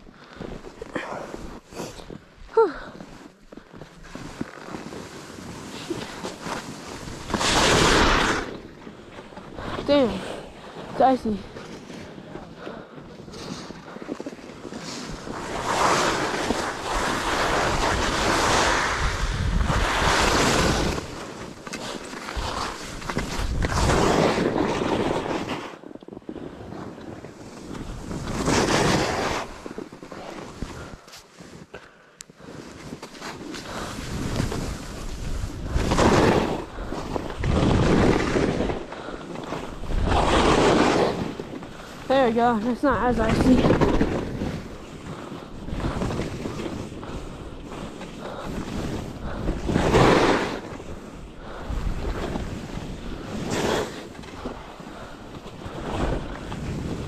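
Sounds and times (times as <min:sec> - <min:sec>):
skis scraping over icy snow: 0:00.2 - 0:31.8, 0:32.4 - 0:57.0
wind rushing over microphone: 0:15.0 - 0:21.5, 0:22.3 - 0:25.5, 0:33.6 - 0:57.0.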